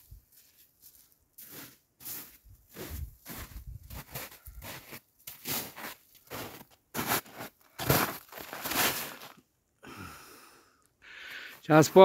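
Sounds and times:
footsteps crunching in snow: 0.0s - 9.4s.

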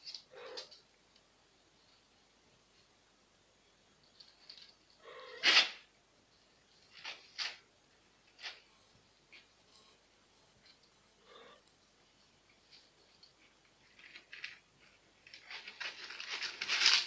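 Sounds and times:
kittens scratching in litter: 13.8s - 17.0s.

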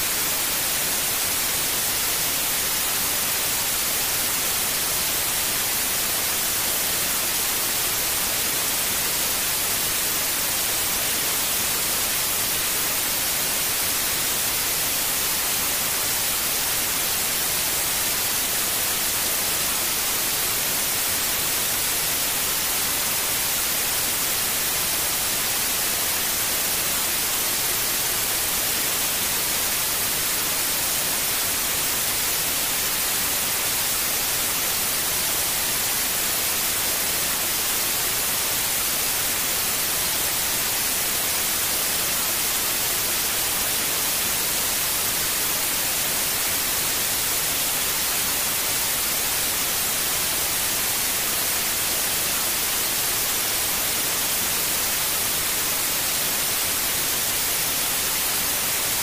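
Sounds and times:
white noise hiss: 0.0s - 59.0s.

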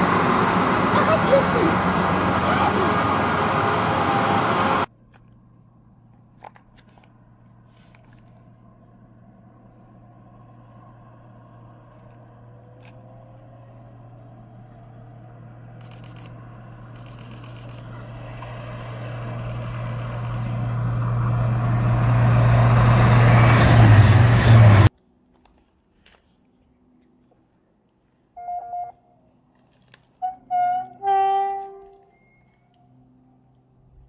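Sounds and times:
diesel train engine: 0.0s - 25.0s
wheels on rails: 15.8s - 24.9s.

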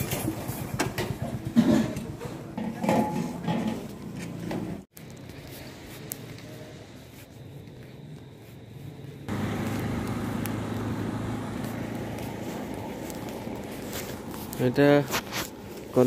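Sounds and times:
hiss of road traffic: 5.0s - 16.0s.

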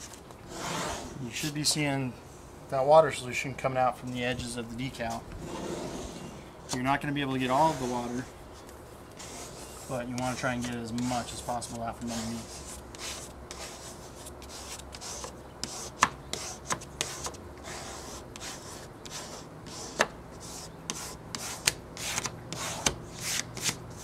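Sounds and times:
squeegee rubbing wet vinyl: 6.7s - 8.3s, 9.2s - 24.0s.

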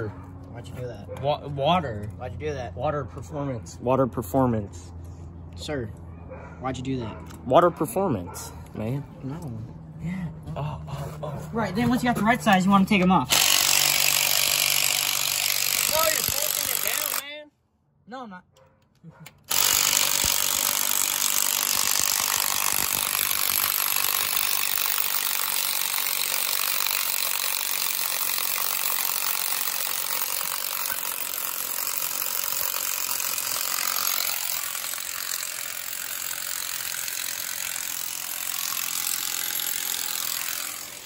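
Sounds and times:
impact wrench hammering: 13.3s - 17.2s, 19.4s - 41.0s.

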